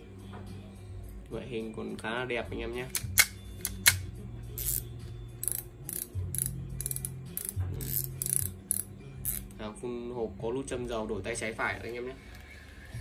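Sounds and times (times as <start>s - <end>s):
fishing reel clicks: 4.6s - 9.5s
reel ratcheting clicks: 4.6s - 9.5s.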